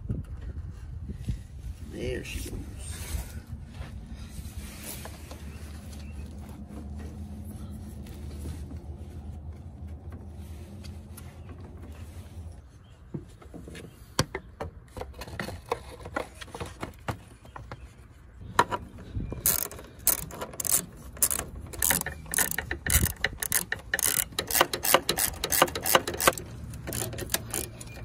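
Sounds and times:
hand ratchet clicking: 19.4 - 28.0.

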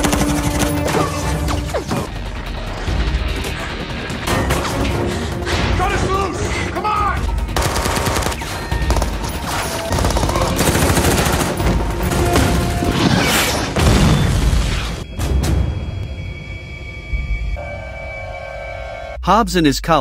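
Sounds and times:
rapid automatic gunfire: 0.0 - 0.9, 7.6 - 12.9.

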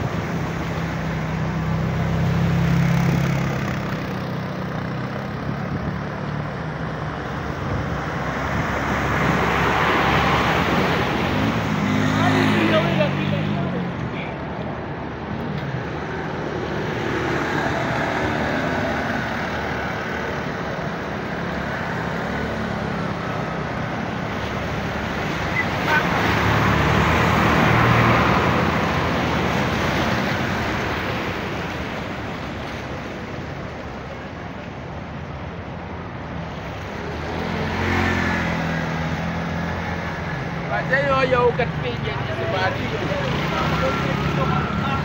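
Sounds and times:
vehicle engines running: 0.0 - 45.0
truck pushing wave of water: 21.8 - 34.1
floodwater splashing: 21.8 - 35.2.

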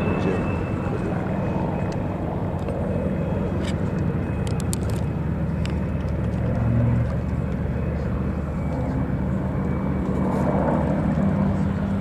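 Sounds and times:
distant propeller aircraft drone: 0.0 - 12.0.

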